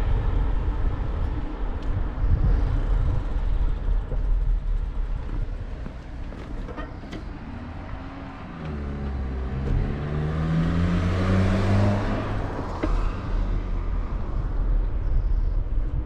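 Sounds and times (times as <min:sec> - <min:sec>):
car accelerating past: 0:07.9 - 0:14.4.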